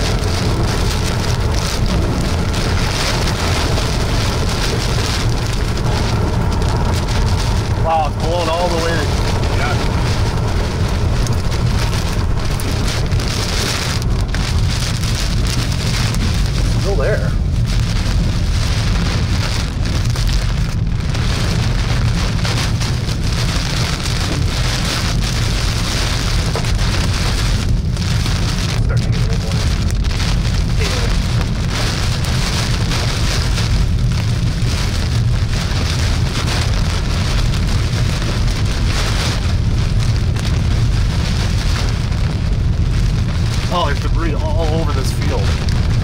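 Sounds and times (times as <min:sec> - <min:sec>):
car driving rumble: 0:00.0 - 0:46.0
heavy rain on car windshield: 0:00.0 - 0:46.0.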